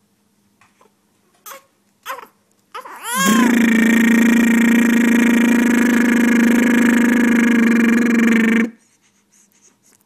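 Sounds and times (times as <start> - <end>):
man's lip trill: 3.1 - 8.8.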